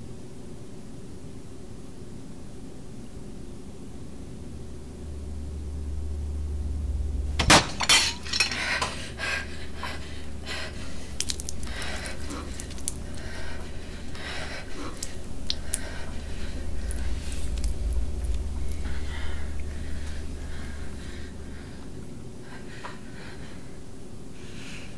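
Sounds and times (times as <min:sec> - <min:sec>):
steady low hum: 0:00.0 - 0:24.9
crockery and cutlery clattering: 0:07.4 - 0:09.0.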